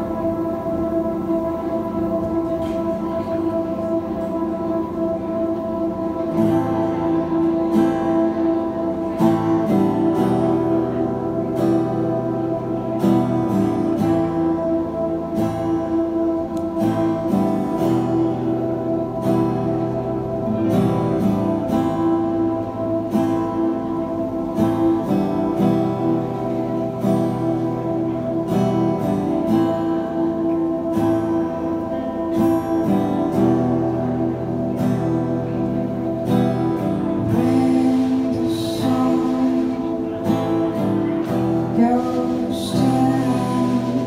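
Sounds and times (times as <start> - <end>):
electric guitar: 0.0 - 44.0
strummed acoustic guitar: 0.0 - 44.0.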